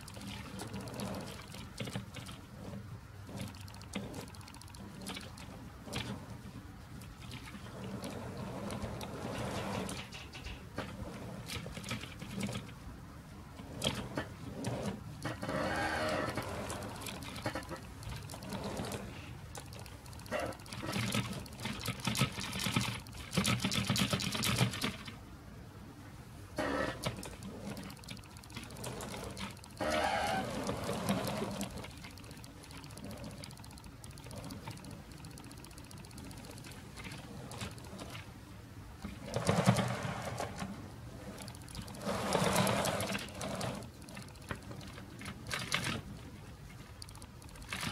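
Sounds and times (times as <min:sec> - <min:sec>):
model train wheels clicking: 0:00.0 - 0:12.8, 0:13.5 - 0:25.2, 0:26.6 - 0:38.3, 0:39.0 - 0:47.9
small electric motor whirring: 0:26.6 - 0:38.2.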